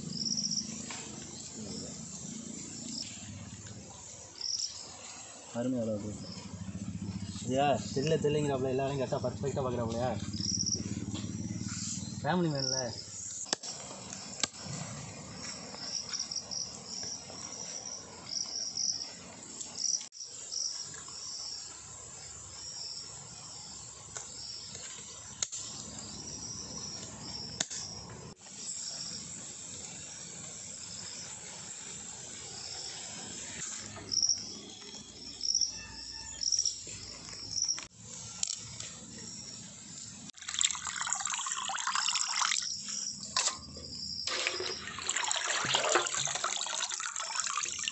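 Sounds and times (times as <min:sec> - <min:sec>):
insects chirping: 0:00.0 - 0:47.9
water sloshing in a basin: 0:40.4 - 0:42.8, 0:44.2 - 0:47.9.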